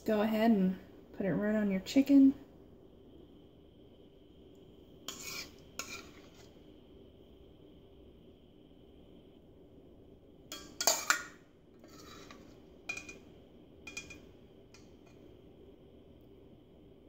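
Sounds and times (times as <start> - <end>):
spoon knocking against saucepan: 13.9 - 14.2.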